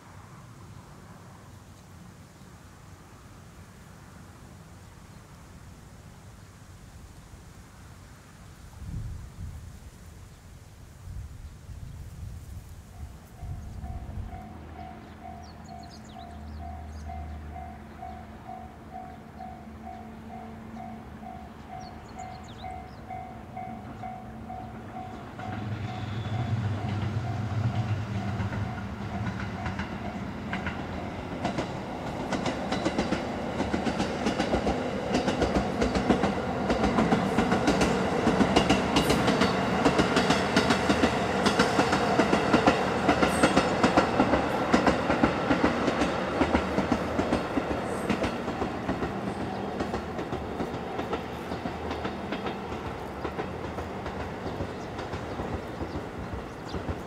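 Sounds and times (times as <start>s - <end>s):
train wheels clattering over rail joints: 25.0s - 57.0s.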